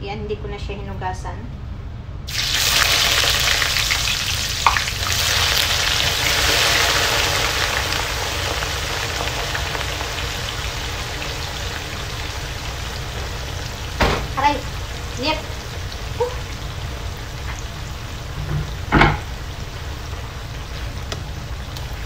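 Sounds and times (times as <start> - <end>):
onions sizzling in hot oil: 2.3 - 22.0
knock on pot: 18.5 - 19.2.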